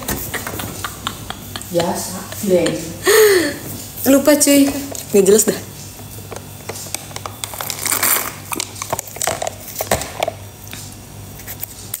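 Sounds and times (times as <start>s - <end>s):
plastic cup crinkling: 6.0s - 12.0s.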